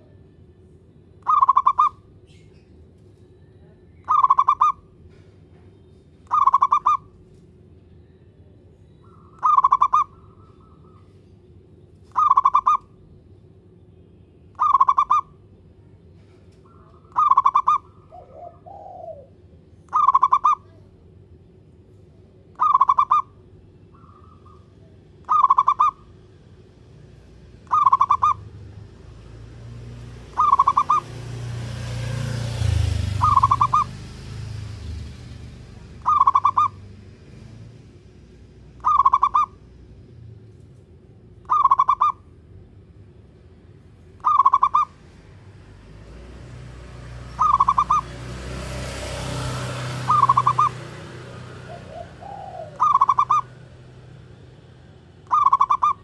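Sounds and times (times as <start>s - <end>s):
dove cooing: 1.2s - 2.0s, 4.1s - 4.8s, 6.3s - 7.1s, 9.1s - 11.0s, 12.1s - 12.8s, 14.6s - 15.3s, 16.7s - 20.8s, 22.6s - 23.3s, 25.2s - 26.1s, 27.6s - 28.6s, 30.3s - 31.3s, 32.6s - 34.0s, 36.0s - 36.8s, 38.8s - 39.6s, 41.5s - 42.2s, 44.2s - 44.9s, 47.4s - 48.1s, 49.7s - 53.8s, 55.2s - 56.0s.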